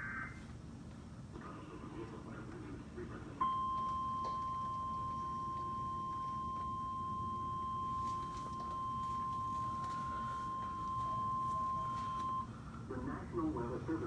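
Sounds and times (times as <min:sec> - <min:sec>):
emergency alert beep: 0:03.4 - 0:12.5.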